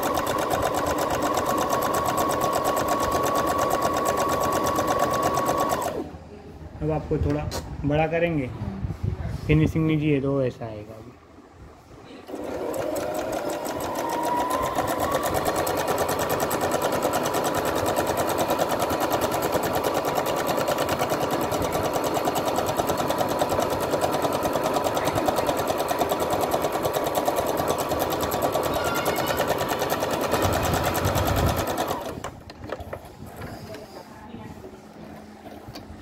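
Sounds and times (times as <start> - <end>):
sewing machine stitching: 0.0 - 6.1, 12.3 - 32.3.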